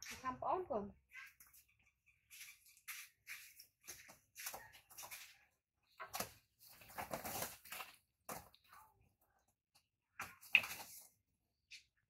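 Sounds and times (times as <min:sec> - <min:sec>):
scuffs on plastic mat: 0:01.4 - 0:08.6.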